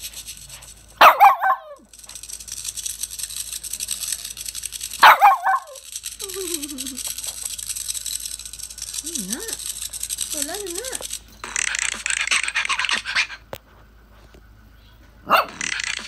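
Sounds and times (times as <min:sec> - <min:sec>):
small dog barking: 0:01.0 - 0:01.8, 0:05.0 - 0:05.8, 0:15.2 - 0:15.7.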